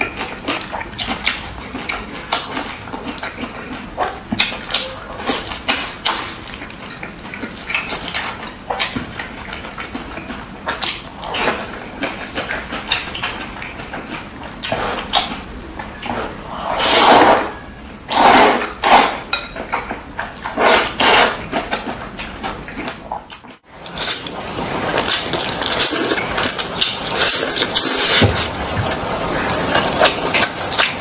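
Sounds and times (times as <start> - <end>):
wet chewing: 0.0 - 16.4, 21.4 - 31.0
noodles slurping: 23.7 - 31.0.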